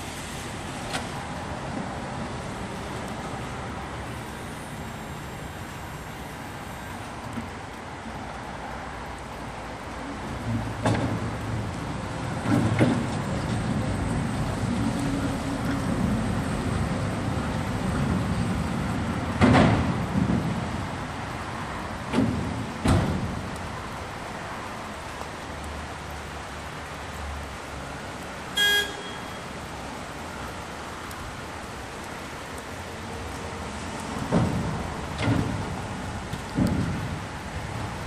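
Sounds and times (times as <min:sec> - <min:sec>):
sharp knocks and clanks: 0:19.4 - 0:20.6, 0:22.1 - 0:23.3, 0:34.2 - 0:37.2
short beep: 0:28.6 - 0:29.4.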